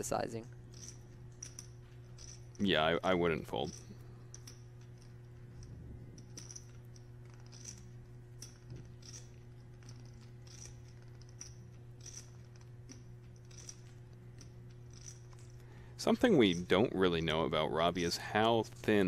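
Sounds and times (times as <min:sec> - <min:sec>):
low steady hum: 0:00.0 - 0:19.0
poker chips clicking: 0:03.6 - 0:15.6.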